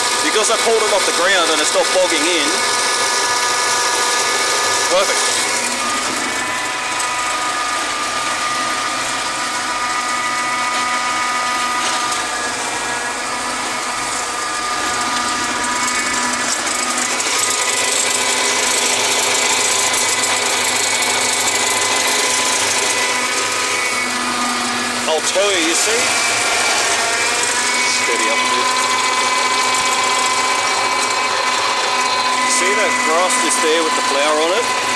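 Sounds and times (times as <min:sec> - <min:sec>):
tractor engine running: 0:00.0 - 0:09.8
flail mower rotor spinning: 0:00.0 - 0:34.9.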